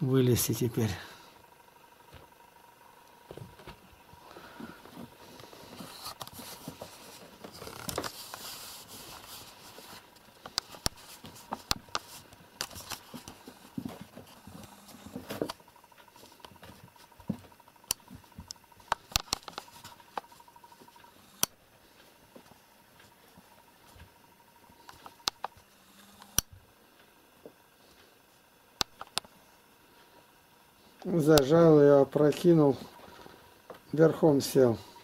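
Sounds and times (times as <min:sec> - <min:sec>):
sharp clicks: 0:24.8 - 0:25.6, 0:28.8 - 0:29.3.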